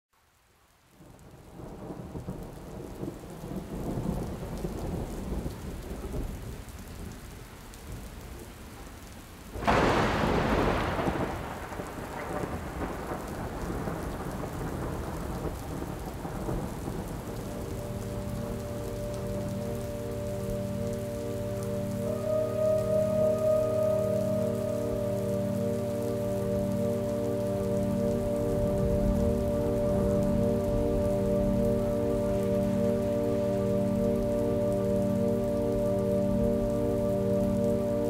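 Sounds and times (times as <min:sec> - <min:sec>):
steady rain: 0:00.1 - 0:38.0
loud thunderclap: 0:09.6 - 0:17.6
thunder rumbling: 0:09.6 - 0:38.0
sustained musical tones: 0:17.5 - 0:38.0.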